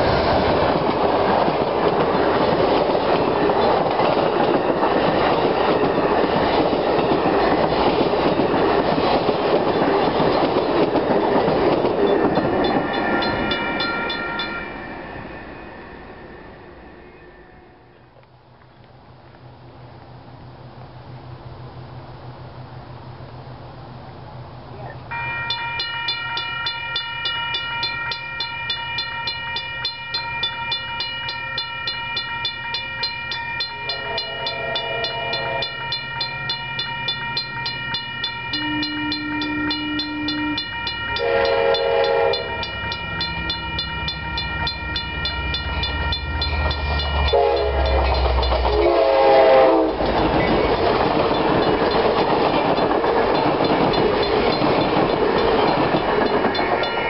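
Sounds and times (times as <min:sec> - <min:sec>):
train wheels rumbling past: 0:00.0 - 0:24.7, 0:25.3 - 0:57.0
crossing bell ringing rapidly: 0:00.9 - 0:17.9, 0:25.1 - 0:57.0
train horn: 0:33.8 - 0:36.0, 0:38.6 - 0:42.7, 0:47.0 - 0:50.1.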